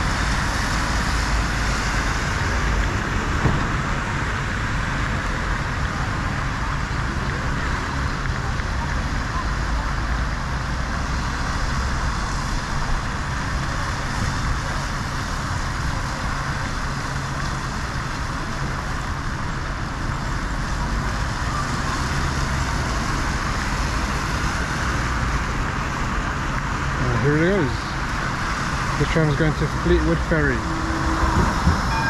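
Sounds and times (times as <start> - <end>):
heavy rain: 0.0 - 32.0
road traffic: 0.0 - 32.0
low rumble: 26.6 - 32.0.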